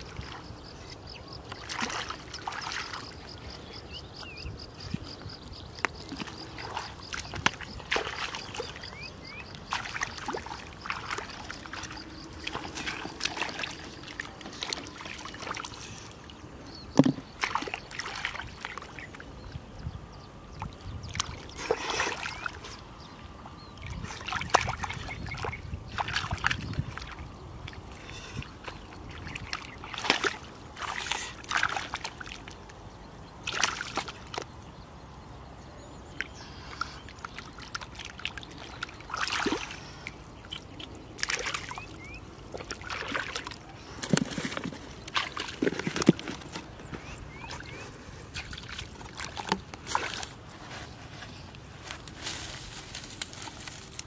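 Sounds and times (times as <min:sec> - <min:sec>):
hands splashing in muddy water: 0:05.9 - 0:08.8, 0:09.6 - 0:15.8, 0:37.3 - 0:39.8, 0:40.5 - 0:46.7.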